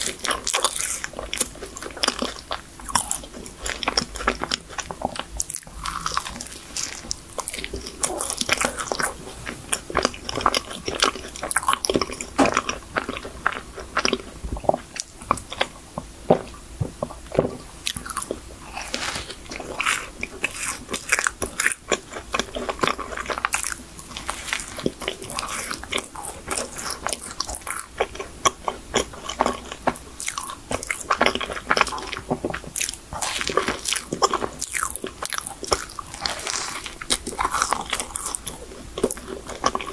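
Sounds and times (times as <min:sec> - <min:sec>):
person chewing: 0:00.0 - 0:39.9
pastry crunching: 0:17.9 - 0:39.9.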